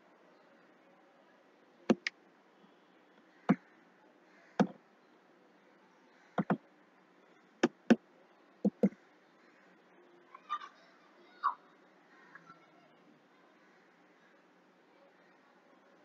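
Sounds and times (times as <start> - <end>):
computer mouse buttons clicking: 8.7 - 9.0.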